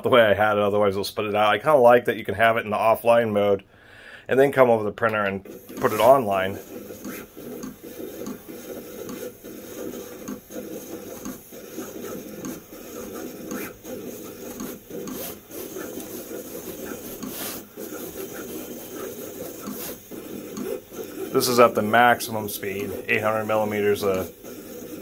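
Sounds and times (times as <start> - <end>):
vinyl cutter motors buzzing: 5.5 - 25.0.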